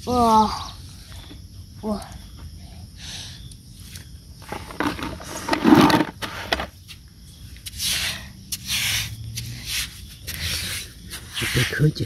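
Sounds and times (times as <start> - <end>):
stick scraping in wet sand: 4.4 - 6.7.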